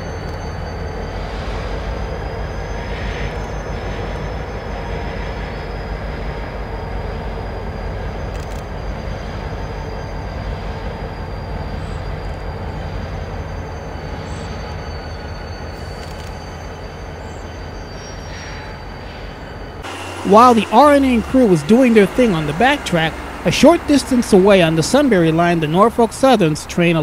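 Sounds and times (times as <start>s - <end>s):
diesel locomotive engine rumbling: 0.0s - 27.0s
thin high whine: 13.1s - 27.0s.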